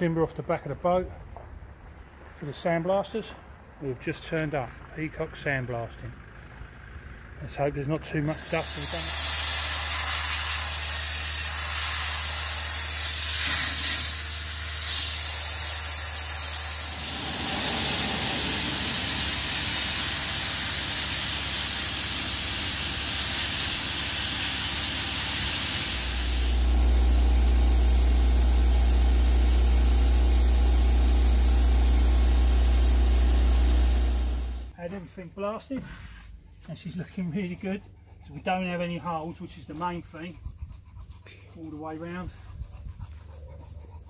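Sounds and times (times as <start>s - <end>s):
sandblasting hiss: 8.3s - 34.7s.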